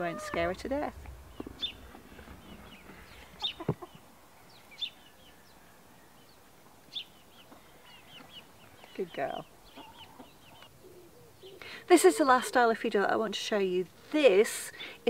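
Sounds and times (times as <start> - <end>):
hens clucking and chirping: 0.0 - 5.6, 6.4 - 11.6.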